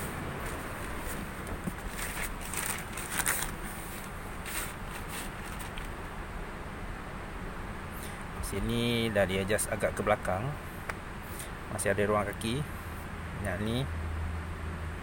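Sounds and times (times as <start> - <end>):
clothing and seat fabric rustling: 0.0 - 6.1
steady low hum: 0.0 - 15.0.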